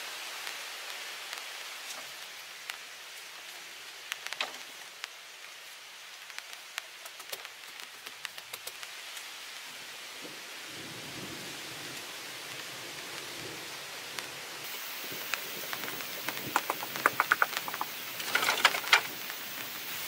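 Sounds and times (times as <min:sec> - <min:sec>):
steady background hiss: 0:00.0 - 0:20.0
bamboo poles clacking: 0:04.1 - 0:05.0, 0:15.2 - 0:19.6.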